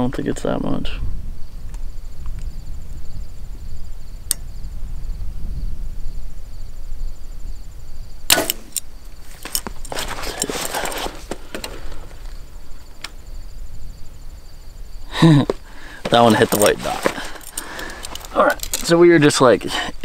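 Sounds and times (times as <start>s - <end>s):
insect trilling: 1.3s - 20.0s
bow string crack: 4.3s - 4.5s, 8.3s - 13.2s
clicks and rustling: 8.3s - 13.2s, 15.3s - 19.3s.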